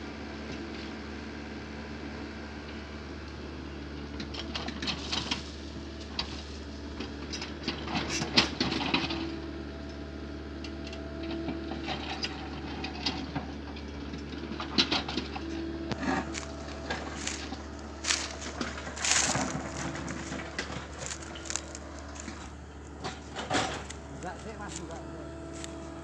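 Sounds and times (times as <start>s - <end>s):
excavator engine running: 0.0s - 26.0s
bucket scraping soil: 15.0s - 25.7s
wood cracking: 15.9s - 24.8s.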